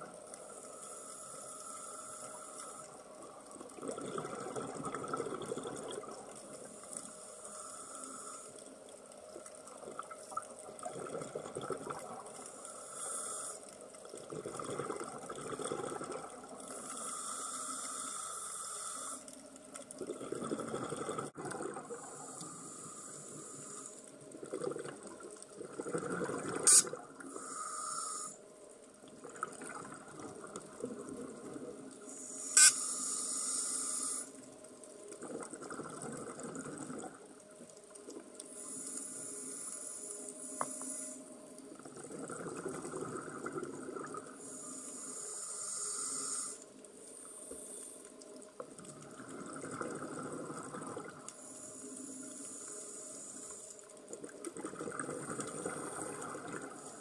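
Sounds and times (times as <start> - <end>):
diver breathing through regulator: 0.5 - 3.0, 6.8 - 8.7, 12.5 - 13.8, 16.6 - 19.4, 21.9 - 24.0, 26.7 - 28.4, 32.1 - 34.4, 44.4 - 48.1.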